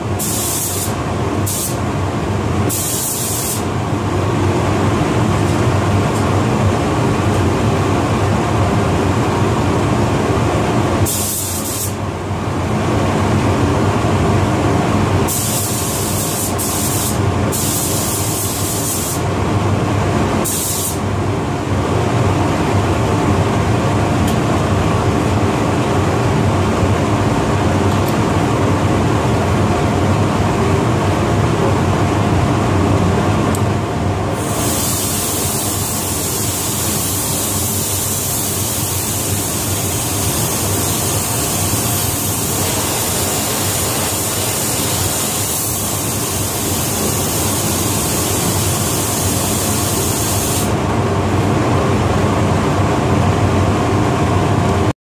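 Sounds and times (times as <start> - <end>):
ventilation humming: 0.0 - 54.9
spray gun air hiss: 0.1 - 1.8, 2.7 - 3.7, 11.0 - 12.0, 15.3 - 19.3, 20.4 - 21.1, 34.3 - 50.8.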